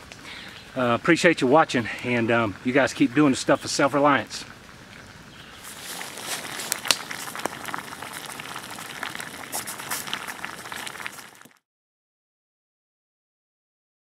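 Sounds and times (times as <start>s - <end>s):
wood fire crackling and popping: 1.9s - 11.6s.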